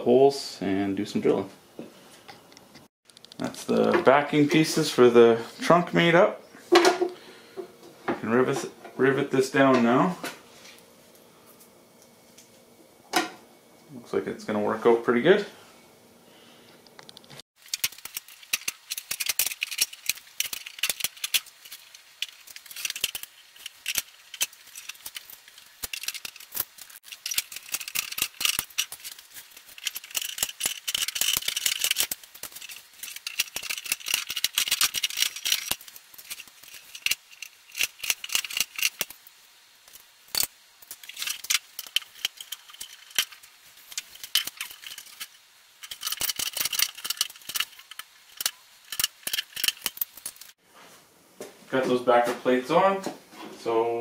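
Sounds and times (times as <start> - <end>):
rivet tool clicking and snapping: 17.0 - 39.2, 40.4 - 50.5.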